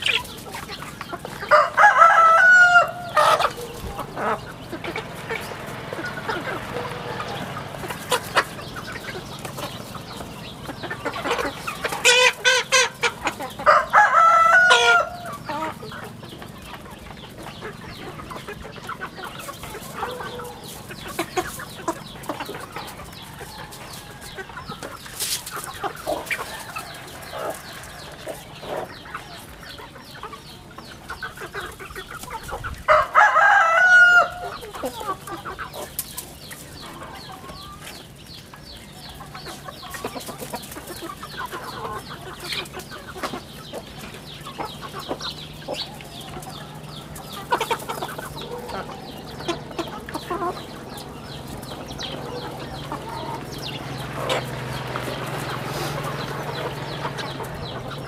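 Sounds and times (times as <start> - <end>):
chickens clucking: 0.0 - 58.0
crow-like chicken calls: 1.4 - 9.8, 10.8 - 16.2, 32.3 - 35.6.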